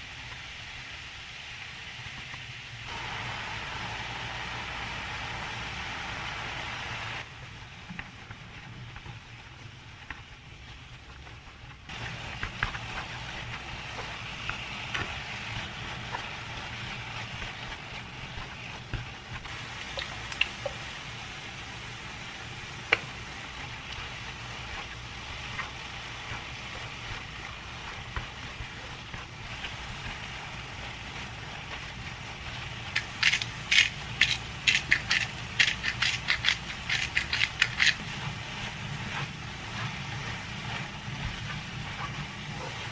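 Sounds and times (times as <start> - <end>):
vegetables sizzling in a frying pan: 0.0 - 42.9
pepper mill grinding: 32.9 - 38.3.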